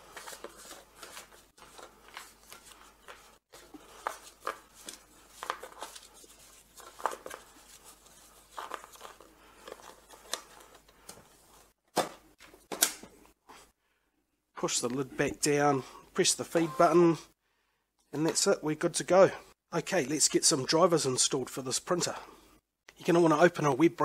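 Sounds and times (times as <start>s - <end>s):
paper labels rustling and scraping: 0.0s - 11.8s.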